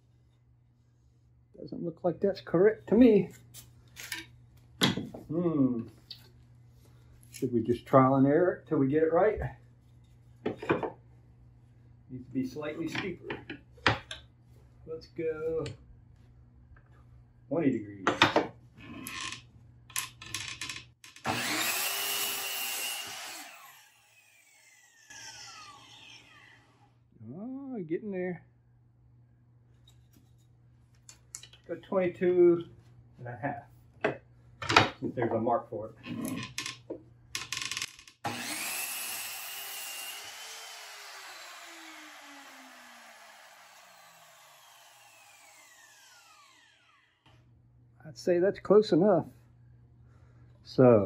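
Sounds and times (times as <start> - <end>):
miter saw motor cutting wood: 21.2 - 26.9, 38.2 - 47.2.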